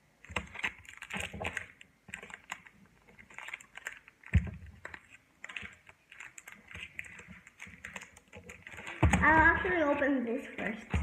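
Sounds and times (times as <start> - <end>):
packaging clicks and rustles: 0.2 - 11.0.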